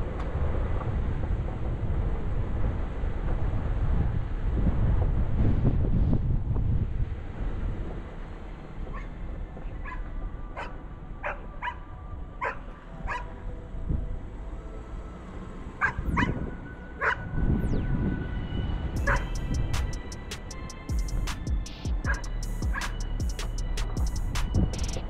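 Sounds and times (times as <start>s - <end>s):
wind rushing: 0.0s - 25.0s
dog barking: 8.9s - 9.1s, 9.8s - 11.8s, 12.4s - 13.3s, 15.8s - 16.4s, 17.0s - 17.2s.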